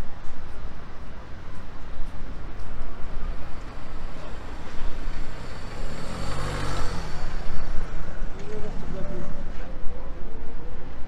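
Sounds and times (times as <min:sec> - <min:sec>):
street traffic noise: 0:00.0 - 0:11.0
car passing at low speed: 0:02.9 - 0:09.8.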